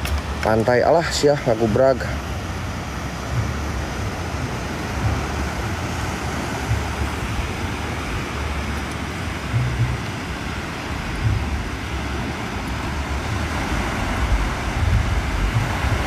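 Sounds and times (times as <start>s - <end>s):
sea surf: 0.0s - 16.0s
wind buffeting the microphone: 0.0s - 16.0s.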